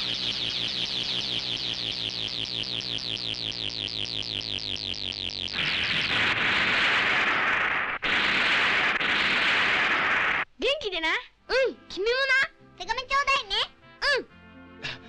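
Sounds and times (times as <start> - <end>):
high-pitched falling electronic chirps: 0.0 - 7.0.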